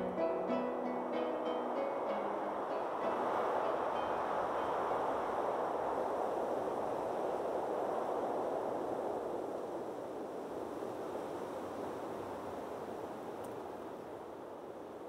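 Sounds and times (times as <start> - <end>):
distant surf on a beach: 0.0 - 15.0.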